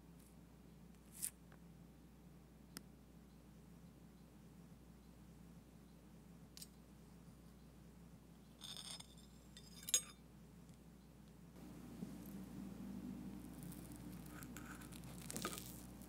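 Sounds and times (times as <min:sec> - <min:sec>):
metal clinking on plate: 0:08.6 - 0:10.2.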